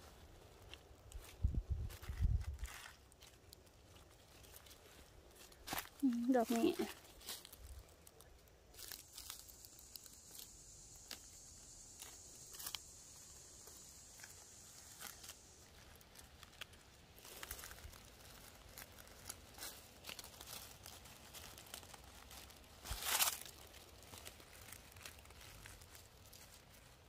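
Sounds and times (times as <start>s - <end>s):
dry leaves rustling and crackling: 0.0s - 27.0s
high-pitched hiss: 8.7s - 27.0s.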